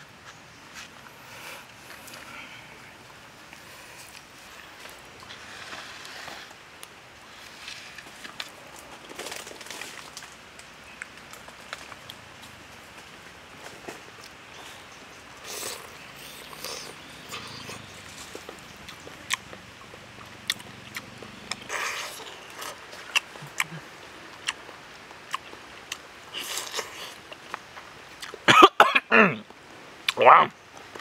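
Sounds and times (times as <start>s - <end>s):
person chewing: 15.4s - 27.6s, 28.2s - 28.4s
pitched mouth noises: 21.4s - 24.6s.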